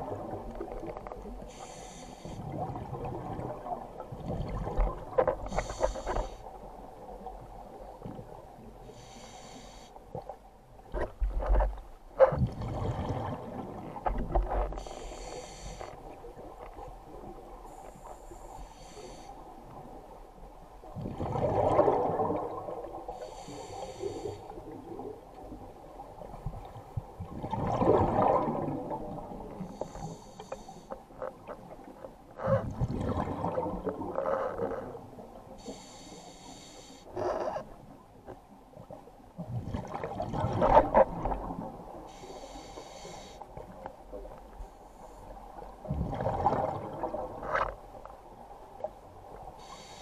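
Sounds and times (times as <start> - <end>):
hissing regulator inhale: 1.5 - 2.4, 5.5 - 6.5, 8.9 - 10.0, 14.8 - 16.0, 17.7 - 19.4, 23.1 - 24.5, 29.6 - 31.0, 35.6 - 37.5, 42.1 - 43.5, 49.6 - 50.0
gurgling exhaled bubbles: 12.4 - 13.9, 21.0 - 23.0, 27.2 - 29.5, 32.4 - 34.2, 45.8 - 47.4.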